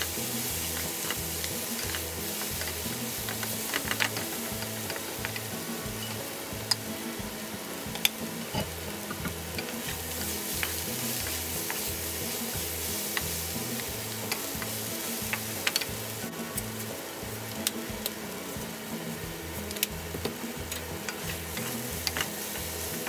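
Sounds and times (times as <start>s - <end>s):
food sizzling in a frying pan: 0.0s - 23.0s
wooden spatulas scraping a pan: 8.0s - 16.1s, 21.0s - 23.0s.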